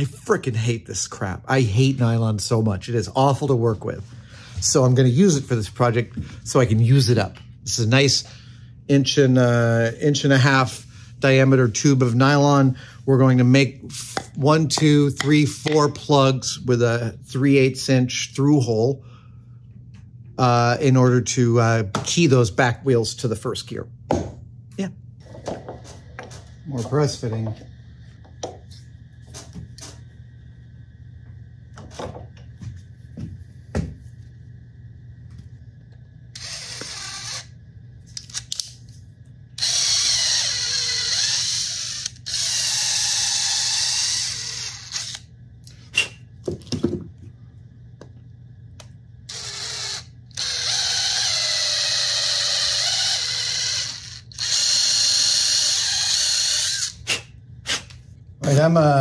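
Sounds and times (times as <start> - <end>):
cordless drill running: 36.3 - 37.5, 39.6 - 45.3, 49.3 - 57.0.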